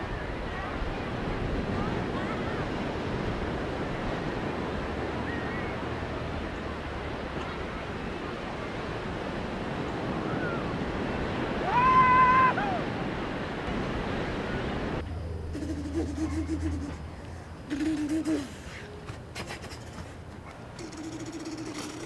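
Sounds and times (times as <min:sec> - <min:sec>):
drawn-out animal call: 0:15.5 - 0:20.2, 0:20.8 - 0:22.0.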